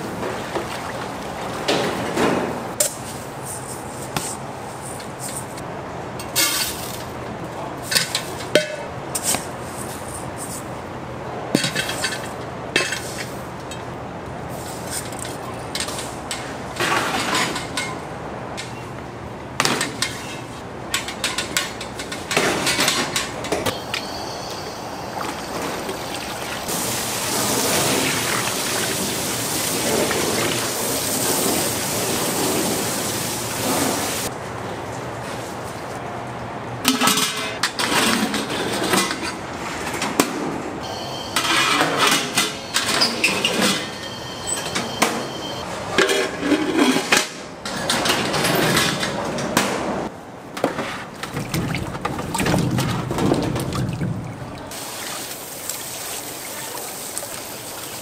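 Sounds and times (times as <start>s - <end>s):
utensils and containers clattering: 6.2s - 7.1s, 7.8s - 10.6s, 11.6s - 13.9s, 14.8s - 18.0s, 19.6s - 33.0s, 36.9s - 39.4s, 41.3s - 49.6s
steady hiss: 26.7s - 29.9s.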